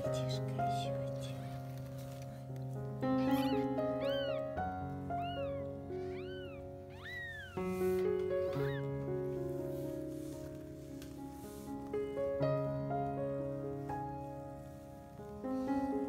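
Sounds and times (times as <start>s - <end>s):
piano music: 0.0s - 16.0s
kitten mewing: 3.0s - 9.0s.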